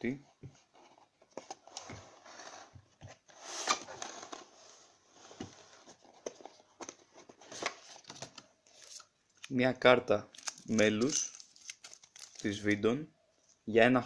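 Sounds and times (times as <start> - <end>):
cardboard box sliding and rubbing: 1.9 - 6.2.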